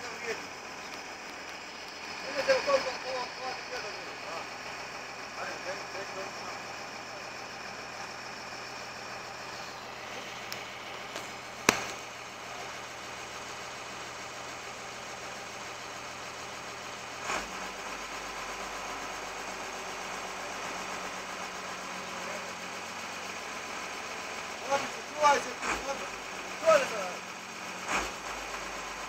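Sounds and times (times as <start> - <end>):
engine running: 0.0 - 29.0
dull thump: 11.6 - 12.0
sharp knock: 11.6 - 12.0.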